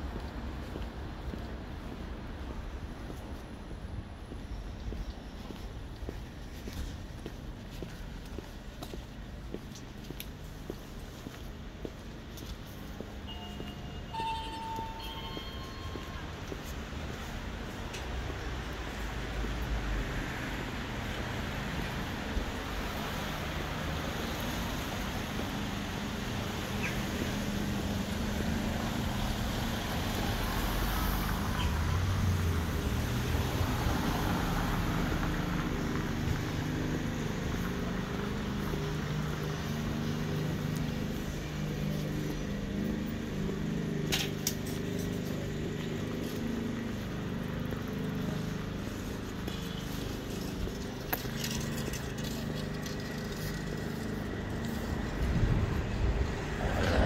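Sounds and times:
traffic noise: 0.0s - 57.0s
low wavering engine hum: 35.0s - 57.0s.

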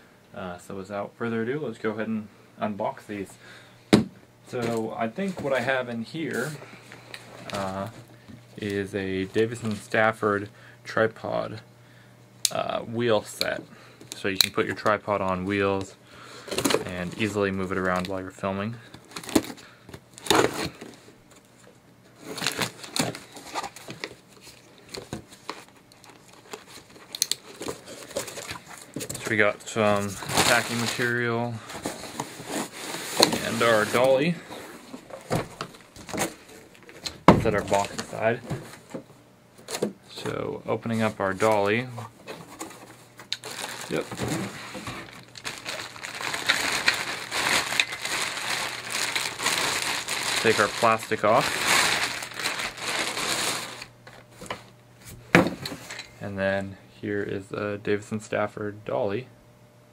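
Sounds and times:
plastic bag crinkling: 22.2s - 34.4s, 35.0s - 38.5s, 43.3s - 54.3s
cardboard rustling: 22.2s - 39.0s, 39.6s - 54.6s.

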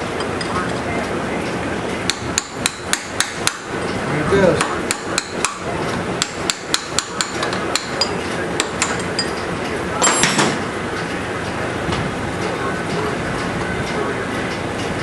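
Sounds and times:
hammer striking metal chisel: 2.1s - 3.7s, 4.6s - 5.6s, 6.2s - 9.4s.

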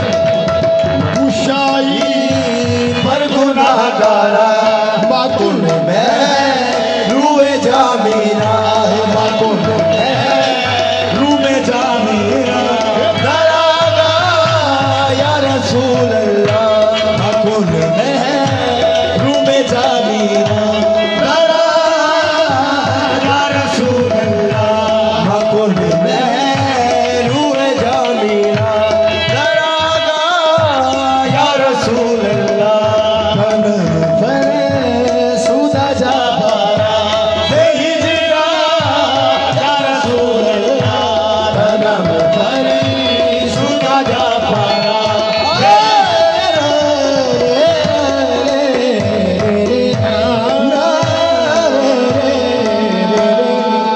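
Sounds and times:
harmonium playing: 0.0s - 53.9s
voices singing: 1.0s - 53.9s
people clapping: 42.0s - 48.2s.

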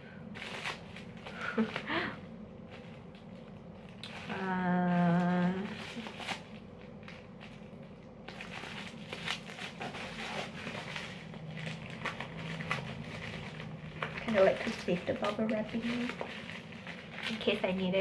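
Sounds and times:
bubble wrap rustling and crackling: 0.0s - 18.0s
woman humming: 4.3s - 5.8s.

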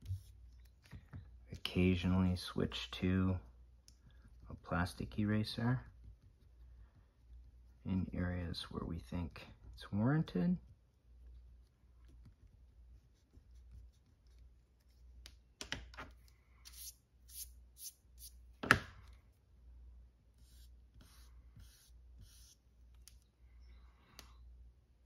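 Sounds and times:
eraser rubbing on paper: 20.4s - 22.6s.

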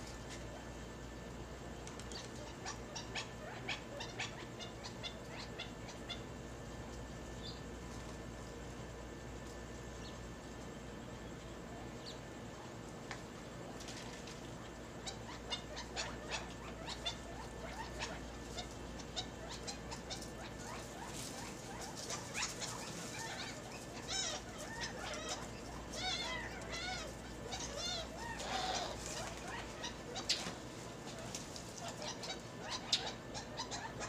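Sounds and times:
lovebirds chirping: 15.0s - 34.0s.

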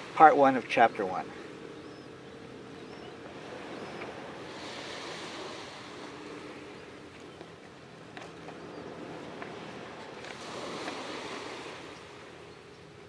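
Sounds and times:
wind: 0.0s - 13.0s
waves washing onto gravel: 4.1s - 7.3s, 9.0s - 12.4s.

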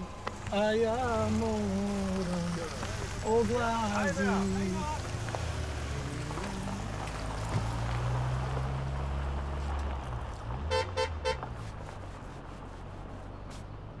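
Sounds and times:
car engine humming: 0.0s - 14.0s
car horn toots: 10.6s - 11.5s.

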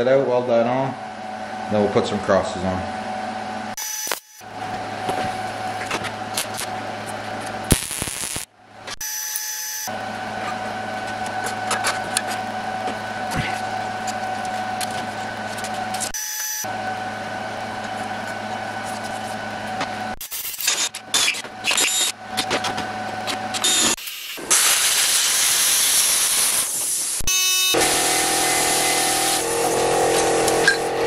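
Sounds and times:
steady machine hum: 0.0s - 9.0s, 9.6s - 24.5s, 27.3s - 31.0s
plasma cutter hissing: 7.7s - 8.4s, 24.0s - 27.2s
drill boring through steel: 23.6s - 31.0s.

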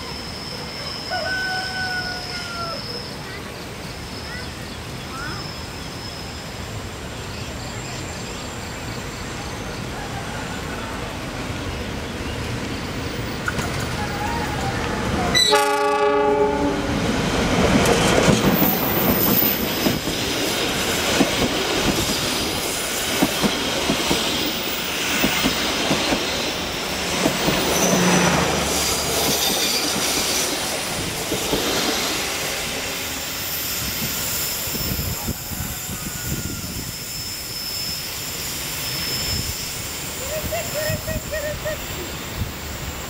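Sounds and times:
train running past: 0.0s - 43.0s
locomotive horn: 15.3s - 17.0s.

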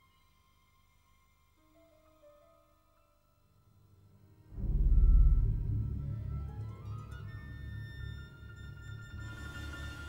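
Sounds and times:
deep heavy low note: 4.5s - 6.5s.

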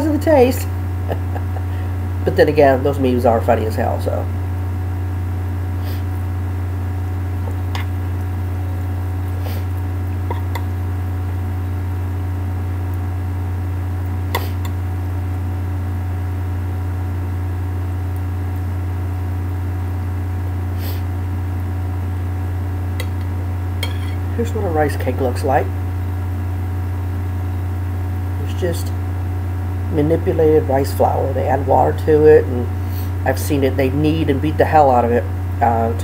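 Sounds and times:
low hum: 0.0s - 36.0s.

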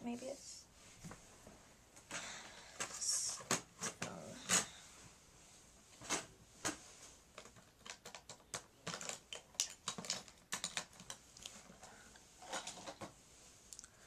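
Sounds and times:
makeup items clicking and clattering: 7.3s - 13.1s.

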